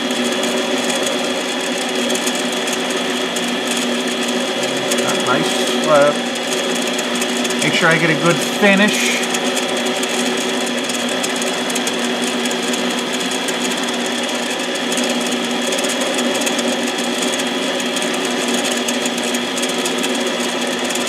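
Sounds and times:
lathe motor whining: 0:02.7 - 0:15.1.

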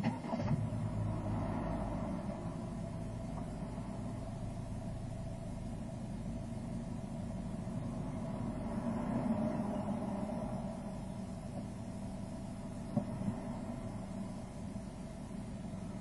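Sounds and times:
traffic rumble: 0:00.0 - 0:16.0
freight train passing: 0:07.6 - 0:12.0.

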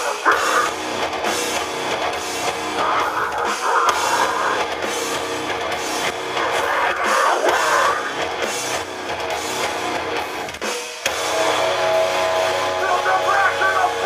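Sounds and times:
vocalist screaming: 0:00.0 - 0:00.8, 0:02.8 - 0:04.7, 0:06.4 - 0:08.2
distorted electric guitars: 0:00.0 - 0:14.0
drum kit: 0:00.0 - 0:14.0.

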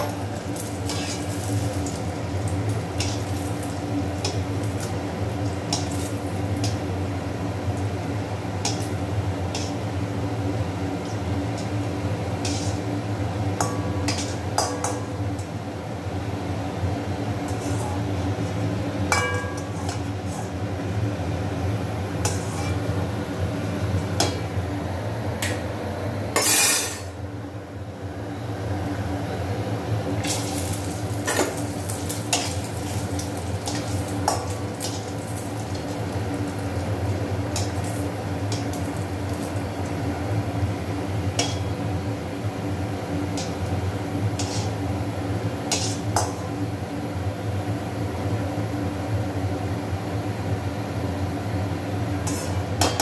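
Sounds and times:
food frying in oil: 0:00.0 - 0:25.2, 0:29.8 - 0:53.0
metal spoon scraping a pan: 0:00.8 - 0:01.7, 0:03.0 - 0:03.4, 0:12.4 - 0:12.9, 0:13.6 - 0:15.1, 0:17.4 - 0:20.6, 0:22.2 - 0:22.9, 0:26.4 - 0:27.1, 0:31.2 - 0:35.1, 0:44.4 - 0:44.8, 0:45.7 - 0:46.5, 0:52.2 - 0:53.0.

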